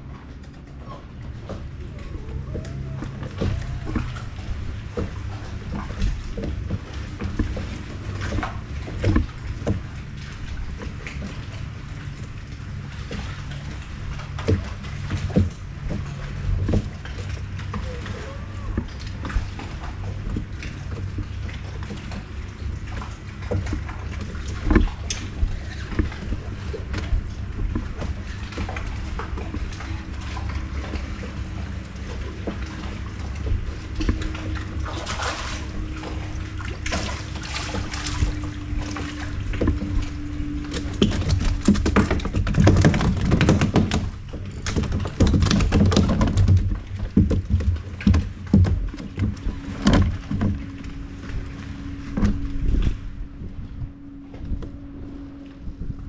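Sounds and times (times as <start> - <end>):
boat motor running: 0.0 - 56.0
water sloshing: 0.0 - 56.0
knocks and rattles: 13.1 - 51.5.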